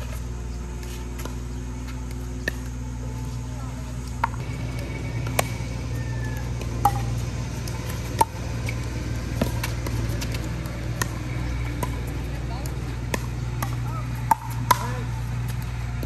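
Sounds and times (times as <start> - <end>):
steady low hum: 0.0 - 16.0
paddle hitting plastic ball: 13.1 - 15.1.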